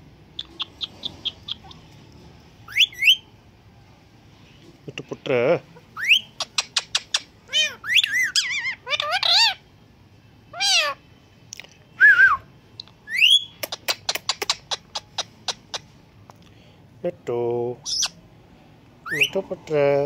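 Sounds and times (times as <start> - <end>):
parakeet whistles: 2.7 - 3.3, 6.0 - 9.5, 13.1 - 15.9, 19.0 - 19.4
parakeet meow-like cries: 7.1 - 9.7, 10.5 - 11.0.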